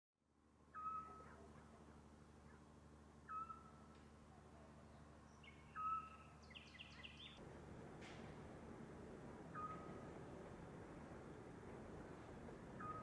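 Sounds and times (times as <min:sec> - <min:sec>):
faint low hum: 0:00.3 - 0:13.0
owl hooting: 0:00.7 - 0:03.9, 0:05.5 - 0:07.2, 0:09.5 - 0:10.0, 0:12.8 - 0:13.0
high bird chirps: 0:03.3 - 0:03.8, 0:05.3 - 0:07.4.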